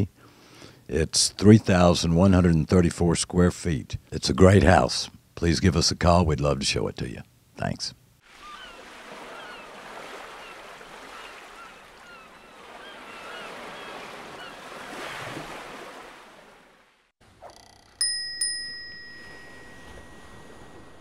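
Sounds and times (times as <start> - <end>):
surf washing in: 8.2 - 16.9, 18.8 - 21.0
birds chirping: 8.4 - 15.2
bell chime ringing: 17.7 - 21.0.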